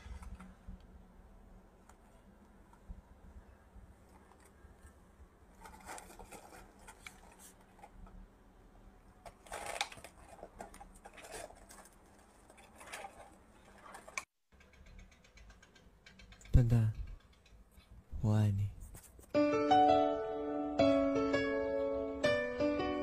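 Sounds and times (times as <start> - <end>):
rustling and crackling of snacks: 3.8 - 8.3, 9.1 - 14.4.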